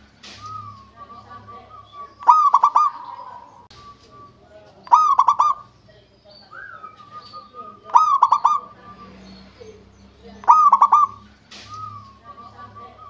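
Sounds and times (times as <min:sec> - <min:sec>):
dove cooing in staccato bursts: 0:00.6 - 0:03.7, 0:04.8 - 0:05.7, 0:06.8 - 0:09.2, 0:10.2 - 0:13.0.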